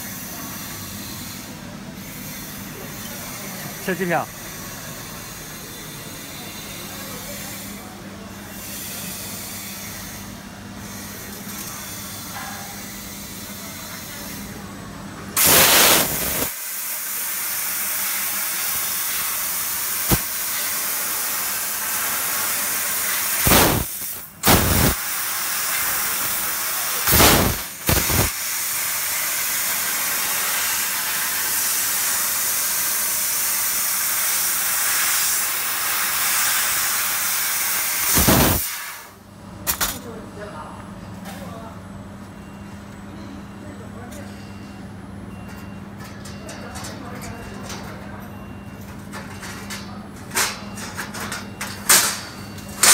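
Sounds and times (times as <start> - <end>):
short loud blasts: 15.4 - 16.6, 23.4 - 25.0, 27.1 - 28.4, 38.1 - 38.7
laser cutting head hissing: 15.4 - 28.8, 34.2 - 39.0.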